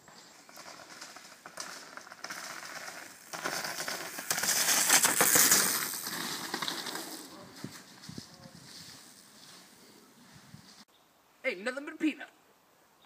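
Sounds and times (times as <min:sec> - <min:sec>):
bike tyres crunching on dirt: 0:00.0 - 0:10.8.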